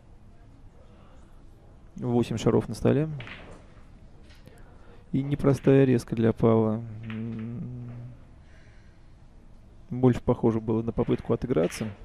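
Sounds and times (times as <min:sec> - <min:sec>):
faint room noise: 0:00.0 - 0:12.0
man humming: 0:06.8 - 0:08.3.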